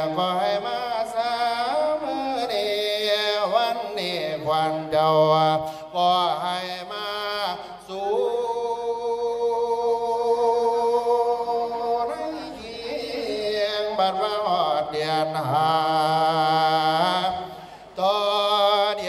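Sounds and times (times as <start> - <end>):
man chanting: 0.0 - 19.0.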